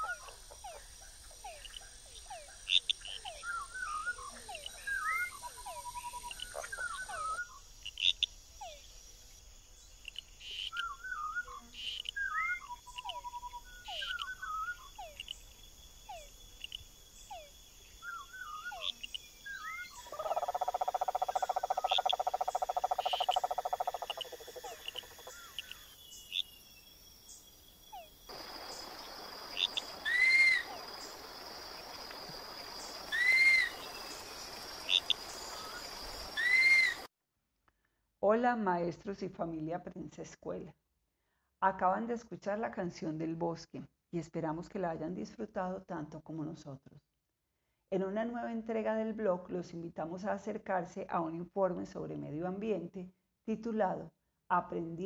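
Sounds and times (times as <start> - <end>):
croaking pulsing call: 0.0 - 8.8, 10.4 - 15.4, 16.0 - 26.5, 27.9 - 37.1
high insect drone: 0.0 - 37.1
bird chirps and whistles: 12.2 - 15.0, 30.0 - 30.7, 33.1 - 33.8, 36.4 - 37.1
steady hiss: 28.3 - 37.1.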